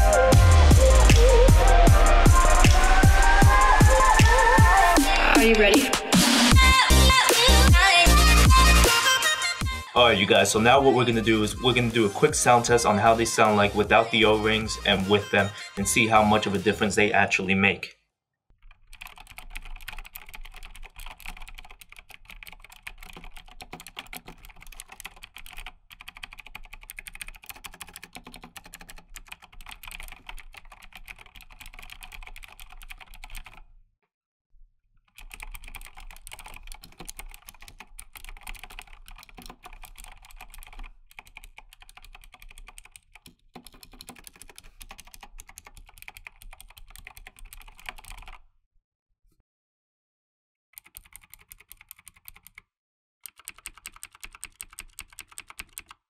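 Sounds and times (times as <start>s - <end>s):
mechanical keyboard typing: 18.6s - 33.6s, 35.1s - 48.4s, 50.8s - 52.6s, 53.2s - 56.0s.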